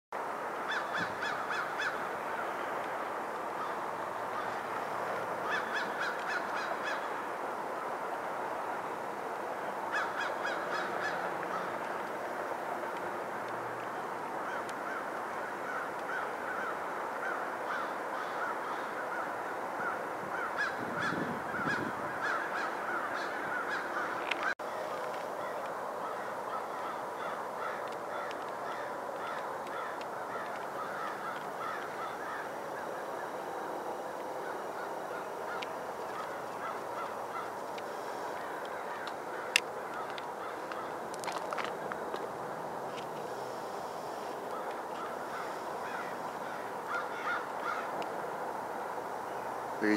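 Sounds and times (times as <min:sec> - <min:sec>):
geese honking: 0:13.9 - 0:42.2, 0:43.2 - 0:48.0.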